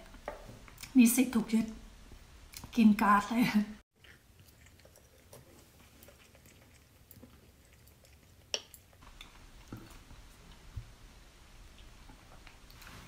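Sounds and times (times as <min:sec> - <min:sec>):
quiet chewing: 0:02.5 - 0:02.8, 0:03.9 - 0:11.0.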